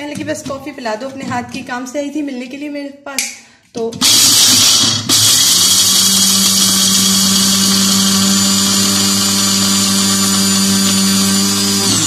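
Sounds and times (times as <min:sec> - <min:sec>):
electric chopper motor whining: 0:04.0 - 0:12.0.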